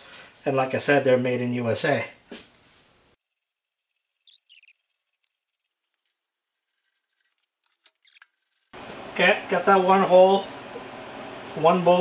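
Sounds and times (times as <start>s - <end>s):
faint high scratching: 3.1s - 8.8s.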